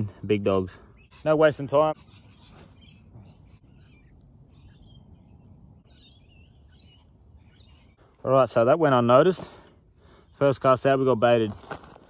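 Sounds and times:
outdoor background noise: 0.0 - 12.0
faint bird calls: 0.7 - 8.2.

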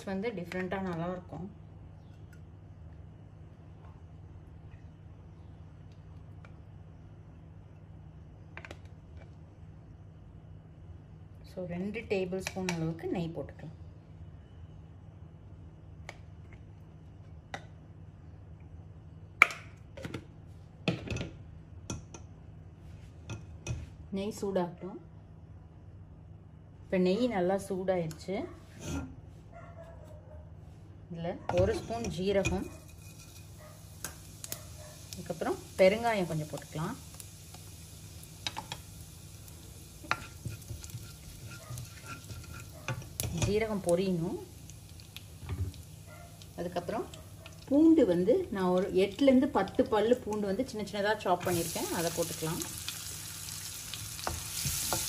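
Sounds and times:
low steady hum: 0.0 - 55.0
ghee popping in a pan: 31.7 - 55.0
seeds sizzling in hot oil: 31.8 - 55.0
wooden spatula stirring: 40.0 - 43.1.

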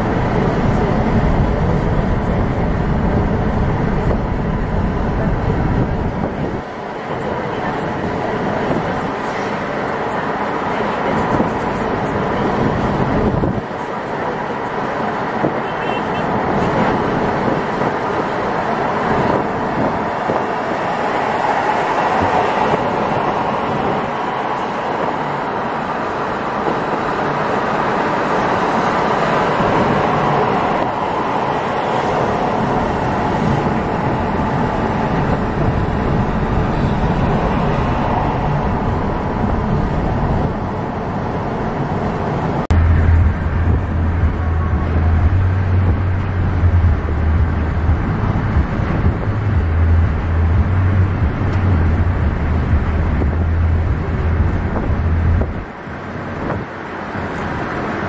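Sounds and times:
tyre and engine road noise: 0.0 - 58.0
deep low rumble: 42.7 - 55.6.

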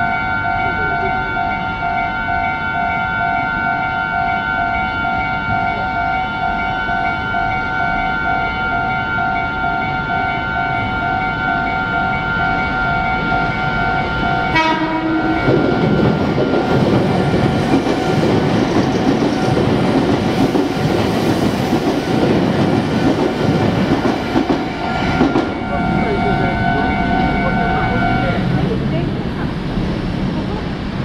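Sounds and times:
train rumble and wheel clatter: 0.0 - 31.0
train horn blast: 13.8 - 16.0
level crossing bell ringing: 24.9 - 28.5.

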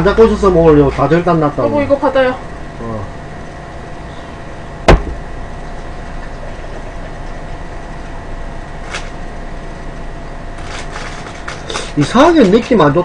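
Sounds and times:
faint steady whine: 0.0 - 13.0
low room hum: 0.0 - 13.0
sharp knock: 4.9 - 5.3.

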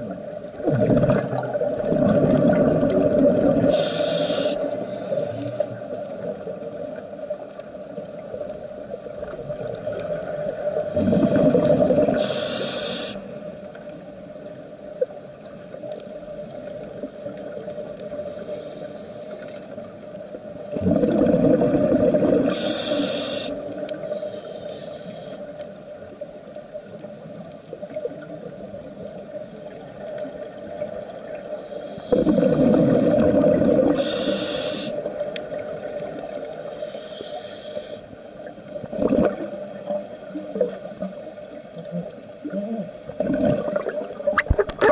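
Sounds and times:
gurgling bubbling exhalations: 0.6 - 3.8, 10.9 - 12.2, 20.7 - 22.6, 32.1 - 34.1, 38.8 - 39.6, 42.4 - 44.9
hissing regulator inhalations: 3.6 - 5.8, 10.8 - 13.5, 18.0 - 19.8, 22.4 - 25.7, 31.5 - 35.2, 36.3 - 38.2.

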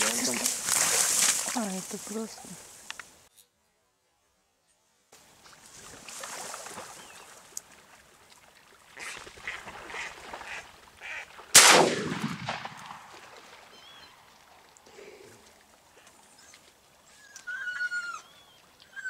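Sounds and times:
duck quacking: 9.4 - 11.3
shotgun shot: 11.5 - 13.2.

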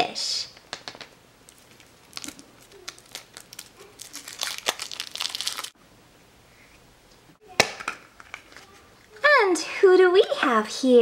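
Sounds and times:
foil wrapper crinkling: 1.5 - 5.8.

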